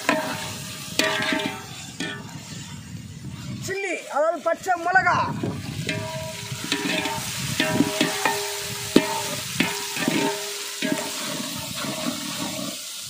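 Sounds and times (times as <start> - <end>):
onions sizzling in oil: 0.0 - 13.0
metal ladle knocking on pot: 1.0 - 2.2, 5.9 - 11.1.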